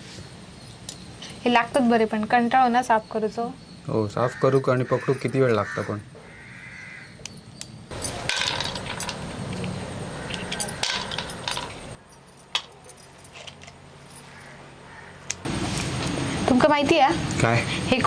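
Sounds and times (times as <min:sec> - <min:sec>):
snail shells clinking: 0:07.9 - 0:13.8.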